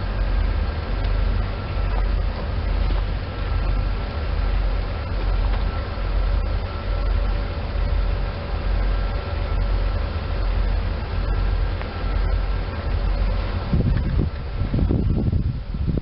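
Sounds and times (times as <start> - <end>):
electric train faint hum: 0.0 - 16.0
wind buffeting the microphone: 10.8 - 16.0.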